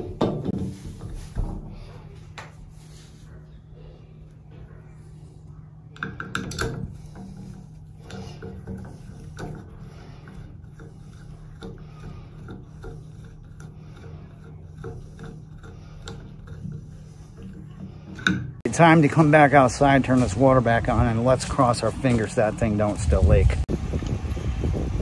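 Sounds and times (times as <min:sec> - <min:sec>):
screwdriver scraping and clicking: 0:06.0 - 0:18.6.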